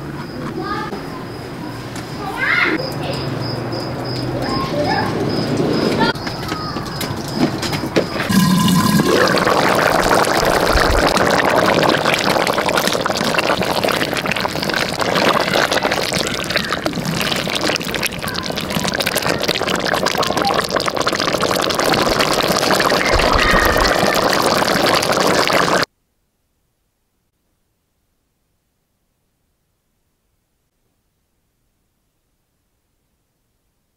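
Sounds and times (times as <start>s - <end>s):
stew bubbling in a pot: 8.2s - 25.9s.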